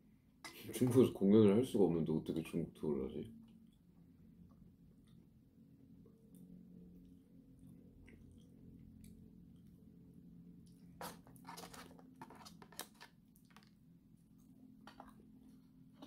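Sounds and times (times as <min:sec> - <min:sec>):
faint room hum: 0:00.0 - 0:16.0
chopsticks crinkling paper box: 0:11.0 - 0:13.8.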